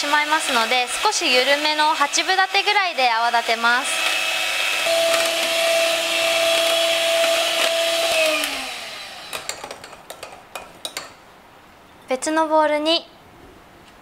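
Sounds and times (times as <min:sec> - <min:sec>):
hand mixer motor whine: 0:00.3 - 0:09.6.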